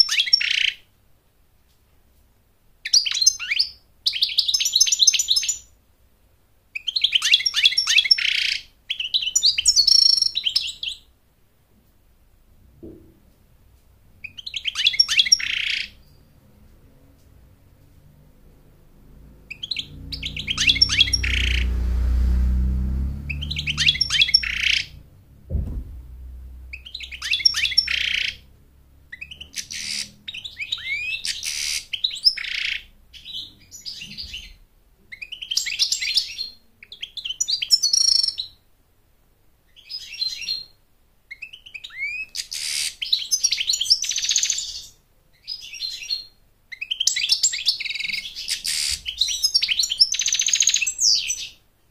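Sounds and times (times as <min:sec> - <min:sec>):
thump: 0:12.7 - 0:13.3, 0:19.9 - 0:27.9
low rumble: 0:15.9 - 0:30.4
goldfinch twittering song: 0:19.5 - 0:25.0, 0:26.5 - 0:28.5.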